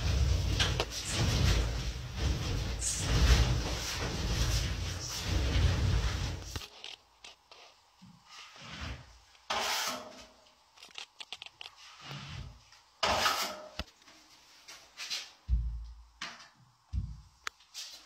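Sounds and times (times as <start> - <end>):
drywall blade scraping compound: 0.0 - 10.4, 11.6 - 13.8
heavy low thumps: 15.5 - 16.2.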